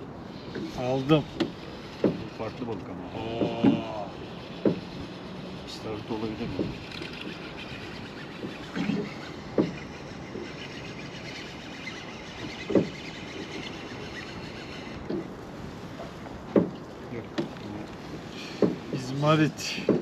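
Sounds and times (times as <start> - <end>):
water noise: 0.0 - 20.0
wind: 0.0 - 20.0
dull knocks: 1.3 - 2.4, 3.3 - 3.8, 4.5 - 5.1, 8.4 - 9.8, 12.6 - 13.1, 16.0 - 20.0.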